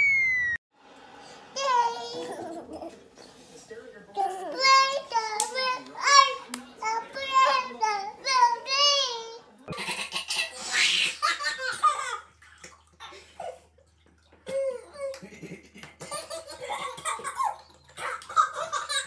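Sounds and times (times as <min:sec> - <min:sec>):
babies laughing and giggling: 0:01.6 - 0:03.1, 0:09.7 - 0:13.8, 0:14.4 - 0:19.0.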